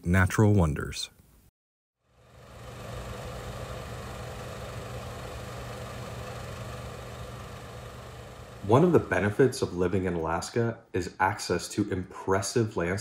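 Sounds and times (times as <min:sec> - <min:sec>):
low mechanical hum: 0:02.0 - 0:10.6.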